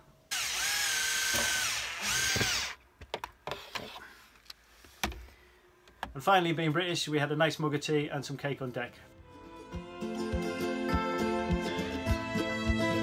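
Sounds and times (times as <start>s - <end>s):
drill-driver driving a screw: 0.3s - 2.8s.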